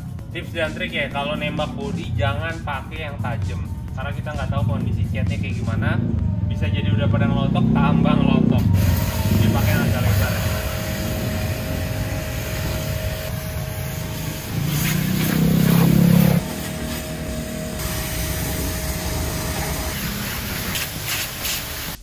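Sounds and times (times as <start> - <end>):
low hum: 8.6 - 20.7
pressure washer jet hissing: 8.6 - 22.0.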